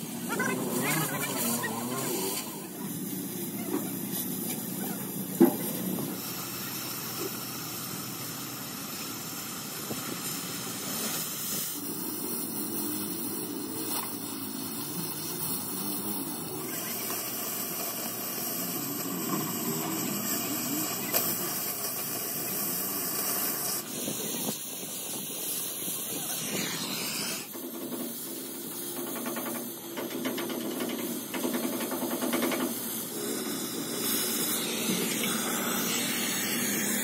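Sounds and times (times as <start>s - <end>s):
cutting torch hissing: 0.0s - 37.0s.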